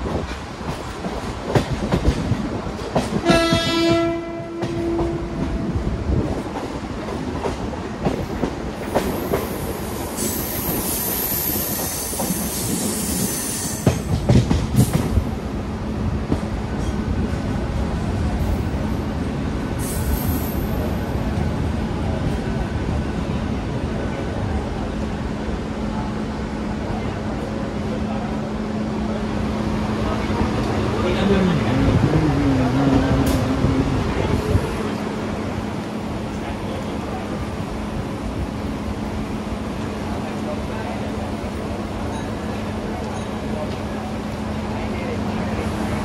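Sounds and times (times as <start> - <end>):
train horn: 3.2 - 5.7
train wheels knocking over rail joints: 13.8 - 15.2.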